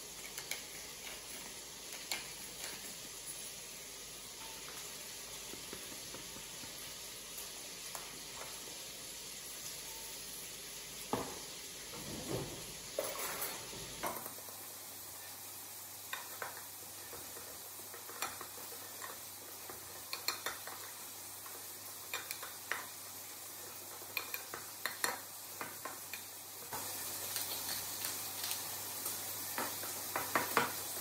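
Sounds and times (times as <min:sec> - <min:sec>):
pepper mill grinding: 0:00.0 - 0:08.7, 0:15.9 - 0:31.0
steady low hiss: 0:00.0 - 0:31.0.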